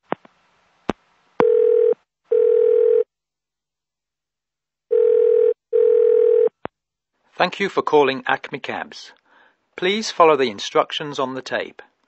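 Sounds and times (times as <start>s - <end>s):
telephone ringing tone: 1.4s - 3.1s, 4.9s - 6.6s.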